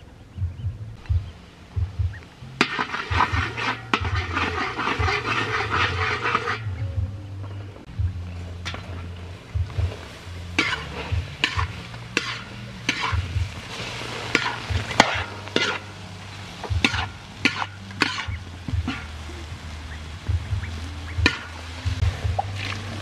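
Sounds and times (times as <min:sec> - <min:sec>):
low steady rumble: 0:00.0 - 0:23.0
food sizzling in oil: 0:02.4 - 0:06.7, 0:08.6 - 0:23.0
ladle scraping metal pan: 0:02.6 - 0:06.8, 0:08.5 - 0:19.3, 0:20.7 - 0:23.0.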